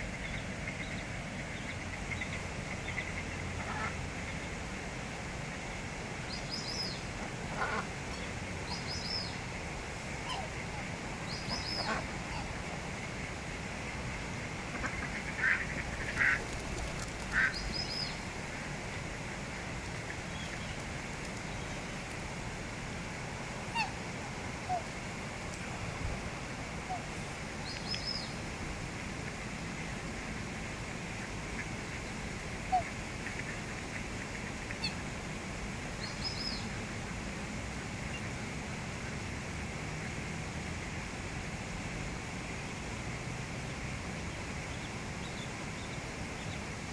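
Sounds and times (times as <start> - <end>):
steady background hiss: 0.0 - 46.9
ducks quacking: 14.7 - 16.5.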